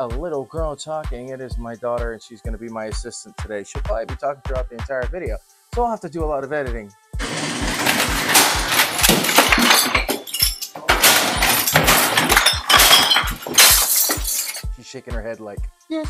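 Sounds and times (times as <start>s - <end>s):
hip hop beat: 0.0s - 6.9s
objects crashing and smashing: 7.2s - 14.6s.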